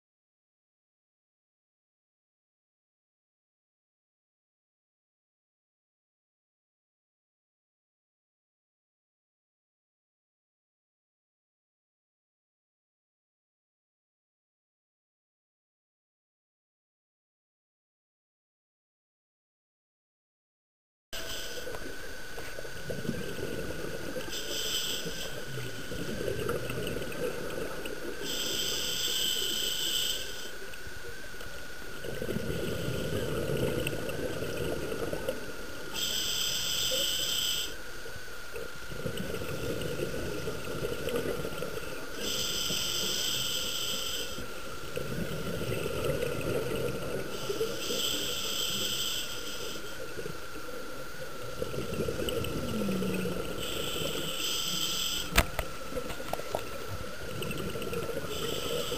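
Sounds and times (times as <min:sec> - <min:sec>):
exhaled air bubbling: 0:21.7 - 0:37.6, 0:38.2 - 0:58.9
hissing regulator breaths: 0:24.2 - 0:26.4, 0:28.1 - 0:30.6, 0:36.0 - 0:37.8, 0:42.1 - 0:44.6, 0:47.3 - 0:50.1, 0:53.0 - 0:55.6, 0:58.2 - 0:58.9.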